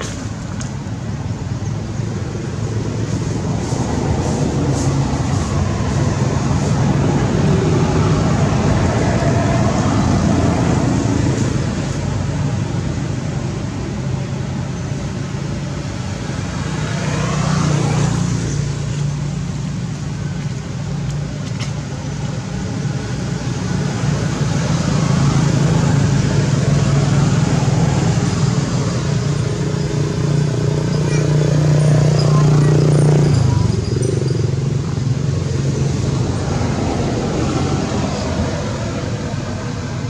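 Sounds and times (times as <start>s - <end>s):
low engine hum: 0.0s - 40.0s.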